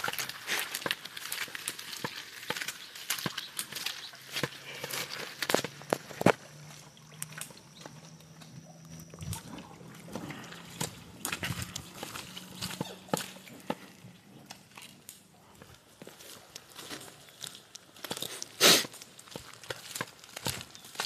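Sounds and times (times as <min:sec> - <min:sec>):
cattle knocks and clicks: 0:00.0 - 0:21.0
low steady hum: 0:04.5 - 0:16.0.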